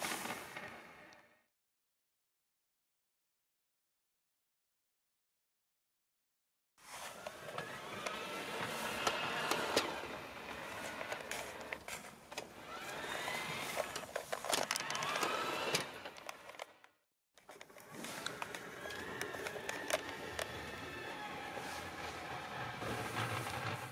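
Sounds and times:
model locomotive motor whining: 7.0s - 16.8s, 17.5s - 23.9s
clicks and crackles: 13.8s - 20.6s.

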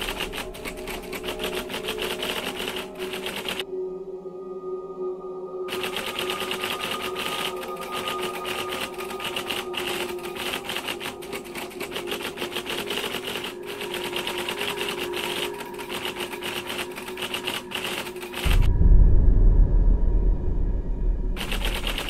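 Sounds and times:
typewriter key clatter: 0.0s - 3.6s, 5.8s - 18.6s.

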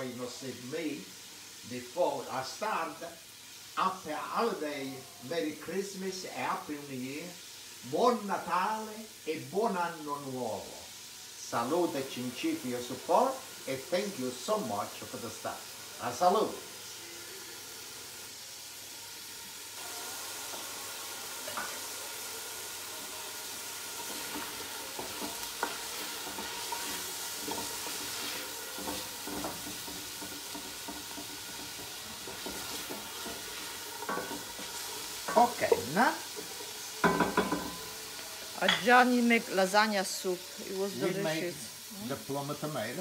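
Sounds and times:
vegetables sizzling in oil: 0.0s - 43.0s.

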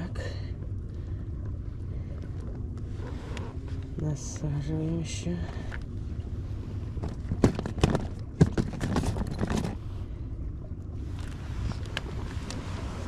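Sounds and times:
fishing tackle knocks and clicks: 7.0s - 9.8s.

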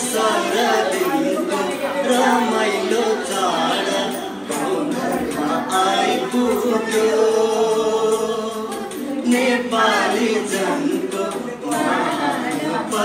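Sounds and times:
several voices singing: 0.0s - 13.0s.

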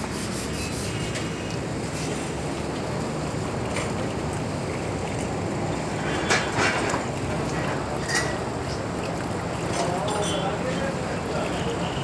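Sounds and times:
water splashing in a bucket: 0.0s - 12.0s.

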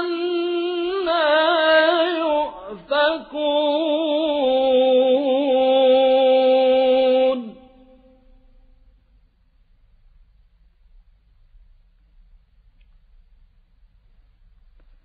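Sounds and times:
man chanting: 0.0s - 8.2s.

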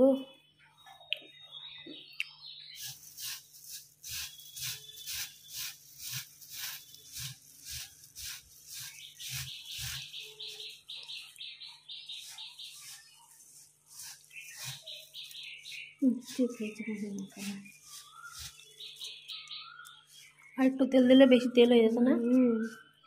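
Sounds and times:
hand mixing puffed rice: 2.7s - 20.6s.

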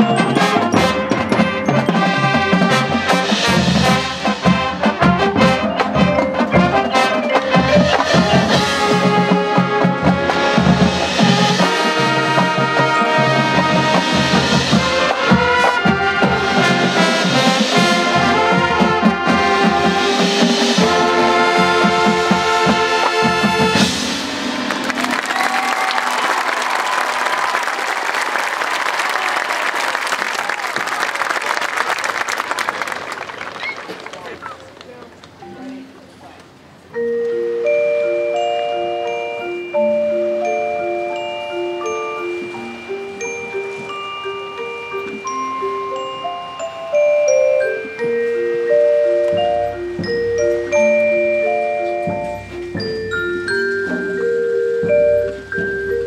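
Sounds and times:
marching band playing: 0.0s - 36.2s, 37.0s - 56.0s
crowd applause: 24.4s - 35.2s.

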